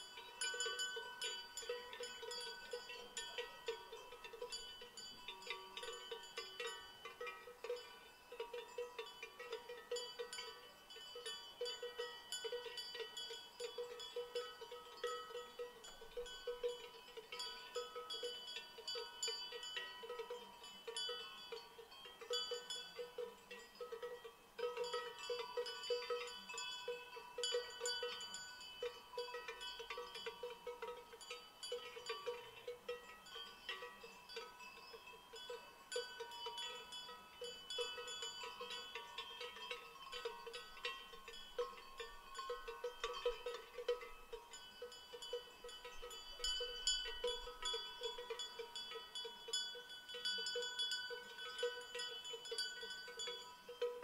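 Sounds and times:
cowbells clanking: 0.0 - 54.0.

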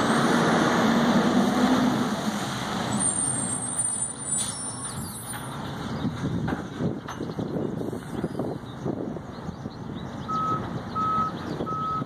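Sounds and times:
garbage truck engine: 0.0 - 7.1
brake squeal: 2.9 - 5.6.

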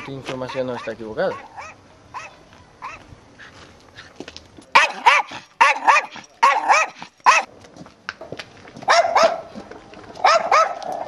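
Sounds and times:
dog barking: 0.0 - 3.0, 4.8 - 7.5, 8.9 - 9.5, 10.2 - 10.9.

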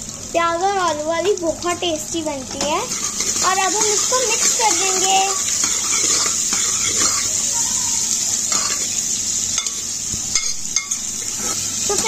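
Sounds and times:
onions sizzling in hot oil: 0.0 - 12.0
spoon stirring: 2.9 - 8.9.

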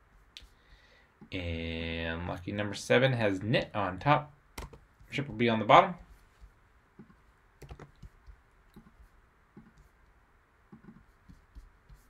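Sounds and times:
keyboard keystrokes: 7.6 - 8.1.

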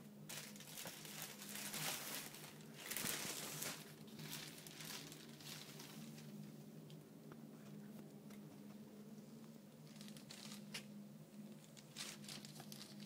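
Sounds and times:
low steady hum: 0.0 - 13.0
rustling and crinkling: 0.3 - 13.0.

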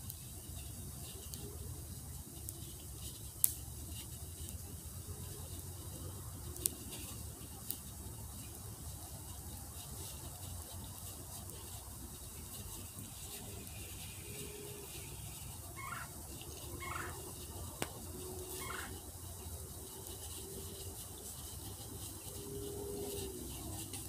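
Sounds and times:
steady outdoor hiss: 0.0 - 24.0
warbling bird calls: 16.8 - 17.2, 18.5 - 19.0.

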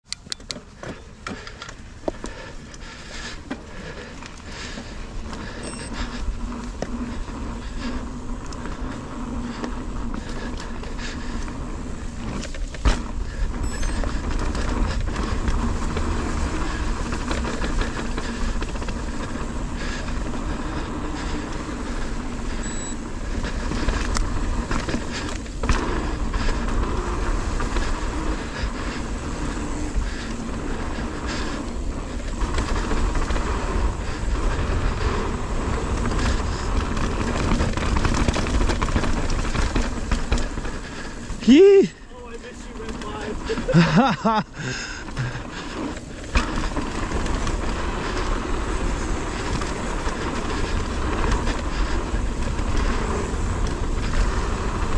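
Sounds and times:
bike tyres rumbling on dirt: 0.1 - 54.9
small clicks and rattles: 7.6 - 26.8, 35.7 - 41.4, 42.3 - 44.0.

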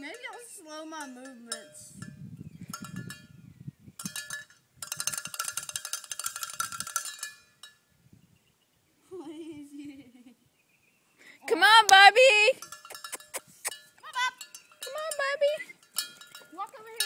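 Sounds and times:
cowbell clanking: 0.0 - 3.4, 4.0 - 7.9, 12.5 - 17.0.

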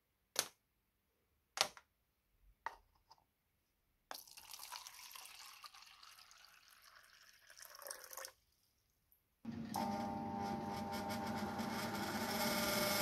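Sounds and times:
water pouring into plastic cup: 4.1 - 8.5.

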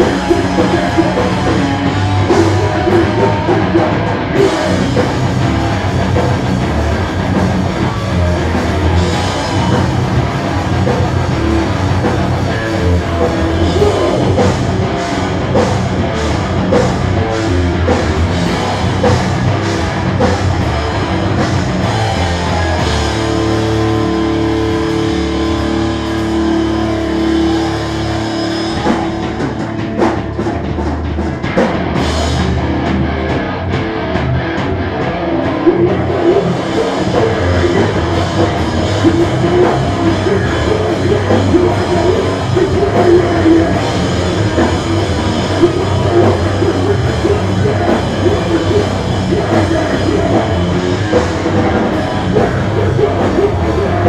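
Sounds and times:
hardcore band playing loud: 0.0 - 54.0
pounding drum kit: 0.0 - 54.0.

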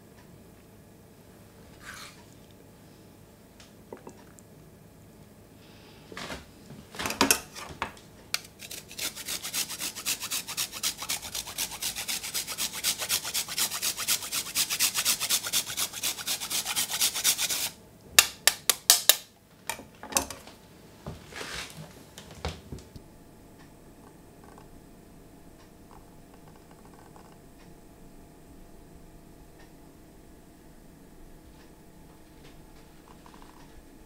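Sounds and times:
grater scraping: 8.4 - 17.8.

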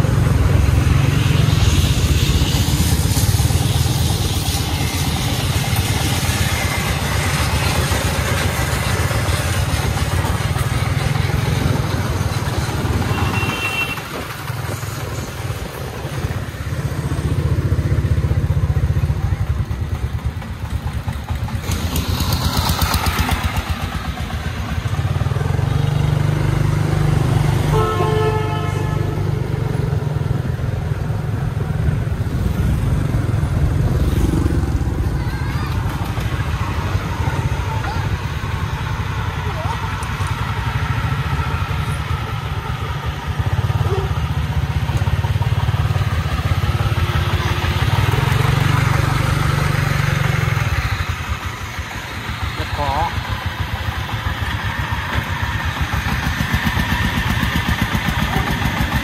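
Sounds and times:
road noise: 0.0 - 59.0
vehicle engine running: 0.0 - 59.0
vehicle horn: 13.0 - 14.2, 27.6 - 29.3.

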